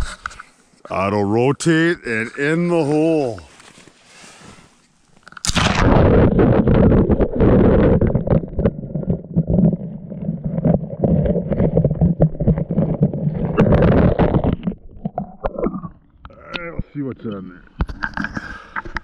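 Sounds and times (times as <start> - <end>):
muffled underwater rumble: 5.6 - 16.4
camera knocking and scraping: 10.6 - 16.0, 17.8 - 19.0.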